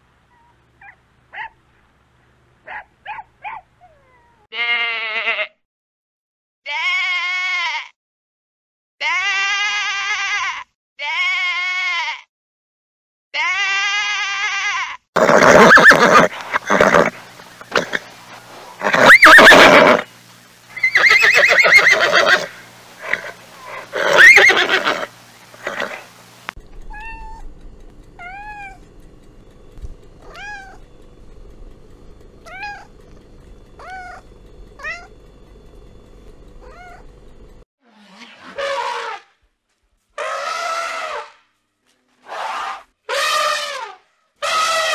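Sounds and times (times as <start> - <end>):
sheep bleating: 4.5 - 5.6, 6.7 - 8.0, 9.0 - 12.3, 13.4 - 17.1
cat meowing: 26.9 - 27.5, 28.2 - 28.8, 30.2 - 30.8, 32.4 - 32.9, 33.8 - 34.2, 34.8 - 35.1, 36.6 - 37.0.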